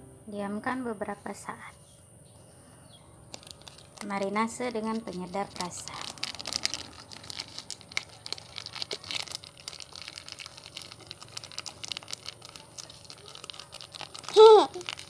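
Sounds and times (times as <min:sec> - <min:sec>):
plastic sachet crinkling: 0:03.3 - 0:15.0.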